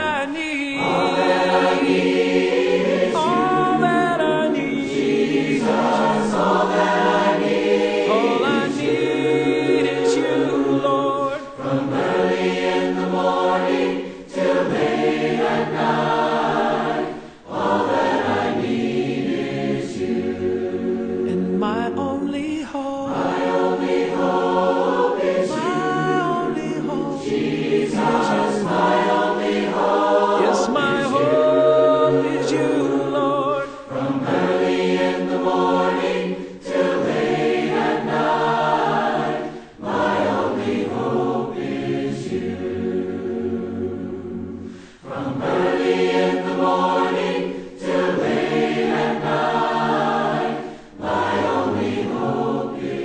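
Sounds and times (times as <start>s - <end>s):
choir singing gospel: 0.0s - 53.0s.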